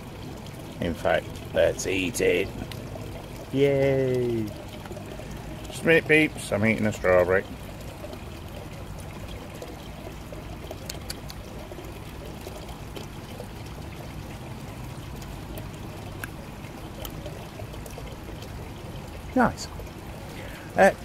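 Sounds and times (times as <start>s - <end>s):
water pouring and trickling: 0.0s - 21.0s
faint clicks: 10.8s - 11.4s.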